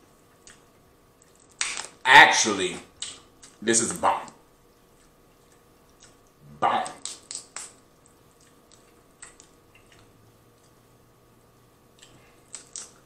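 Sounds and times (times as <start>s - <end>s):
crawfish shells cracking: 1.2s - 2.0s, 5.0s - 10.1s, 12.0s - 13.0s.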